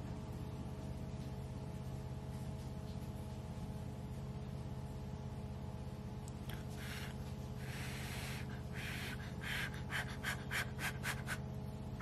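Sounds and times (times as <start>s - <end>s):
steady low hum: 0.0s - 12.0s
person blowing on food: 6.6s - 11.5s.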